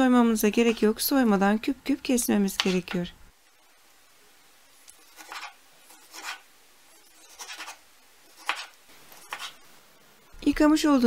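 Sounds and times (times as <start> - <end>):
knife slicing on wooden cutting board: 4.9 - 9.6.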